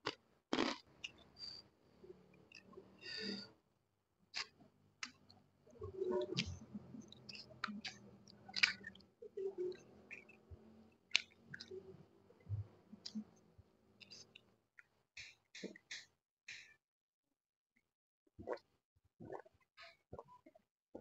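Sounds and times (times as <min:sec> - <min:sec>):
chewing and mouth smacking: 0:00.0 - 0:01.2, 0:06.1 - 0:10.4, 0:11.1 - 0:11.8.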